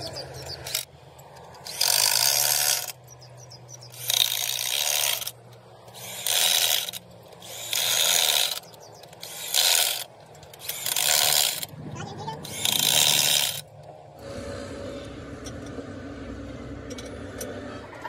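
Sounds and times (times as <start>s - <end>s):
ratchet wrench clicking: 0.3s - 3.2s, 3.9s - 11.7s, 12.4s - 13.7s.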